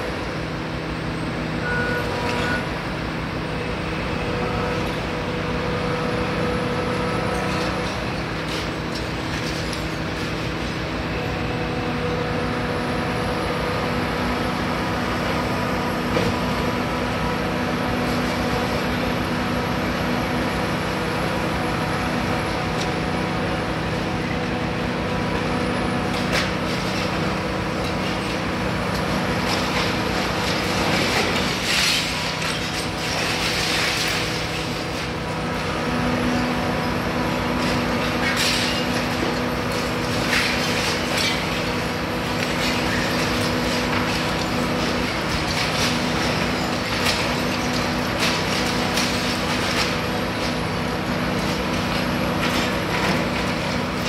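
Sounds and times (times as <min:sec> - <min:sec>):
excavator engine and hydraulics humming: 0:00.0 - 0:54.0
concrete and brick crunching: 0:37.4 - 0:54.0.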